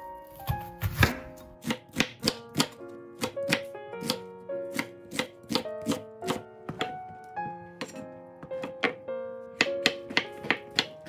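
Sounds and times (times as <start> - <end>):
light background music: 0.0 - 11.0
knife chopping on wooden board: 0.5 - 7.0, 9.6 - 11.0.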